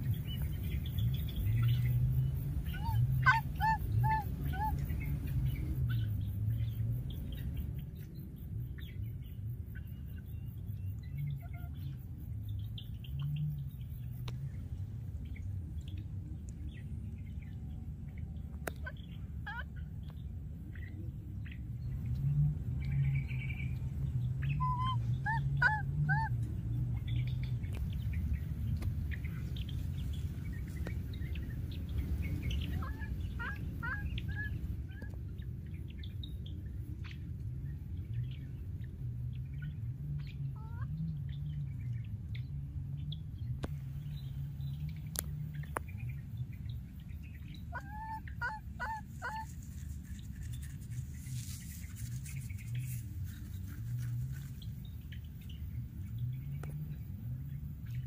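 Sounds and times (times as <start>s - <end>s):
baby monkey squeaky chirps: 2.7s - 4.8s, 24.6s - 26.3s.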